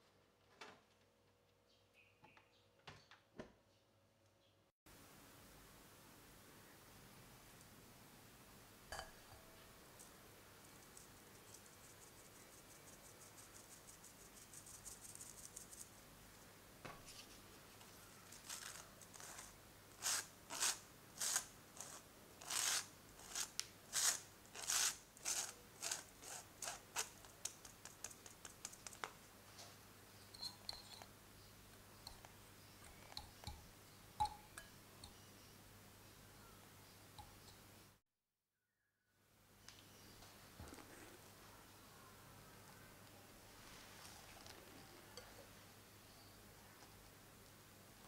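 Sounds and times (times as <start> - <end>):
powder scratching through metal sieve: 18.3 - 27.2
whisk stirring powder in glass bowl: 18.4 - 28.9.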